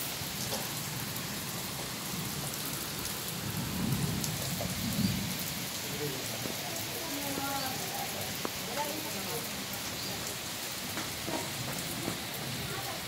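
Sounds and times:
rain on concrete: 0.0s - 13.0s.

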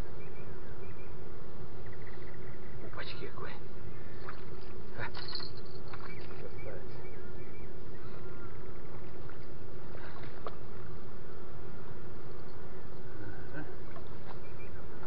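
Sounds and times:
faint steady hum: 0.0s - 15.0s
low outdoor rumble: 0.0s - 15.0s.

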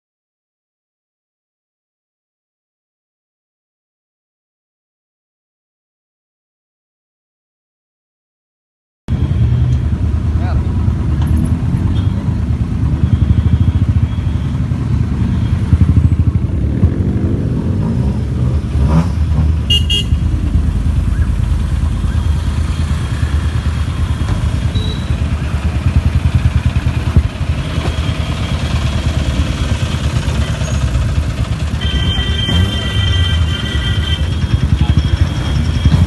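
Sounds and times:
loud car exhausts revving: 9.1s - 36.0s
short high beep: 24.6s - 25.3s, 31.7s - 36.0s.

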